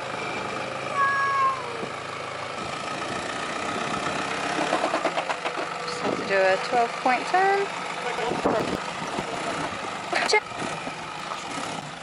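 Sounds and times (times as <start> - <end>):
engine idling: 0.0 - 12.0
short high-pitched call: 1.0 - 1.8.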